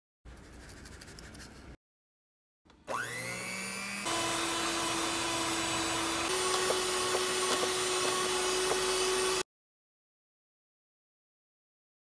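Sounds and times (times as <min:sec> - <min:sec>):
hand mixer motor whine: 0:02.7 - 0:09.4.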